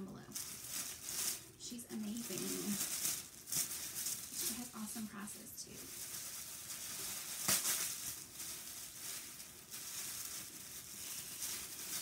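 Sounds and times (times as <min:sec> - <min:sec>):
paper crackle: 0:00.0 - 0:12.0
tissue paper rustling: 0:00.0 - 0:12.0.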